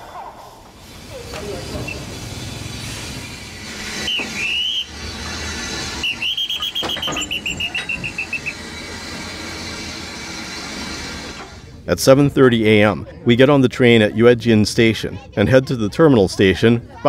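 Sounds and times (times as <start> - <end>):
steam hissing: 0.0 - 11.8
short whistle pips: 3.9 - 5.0, 5.9 - 8.6
hand whistle blast: 3.9 - 5.2, 5.8 - 8.7.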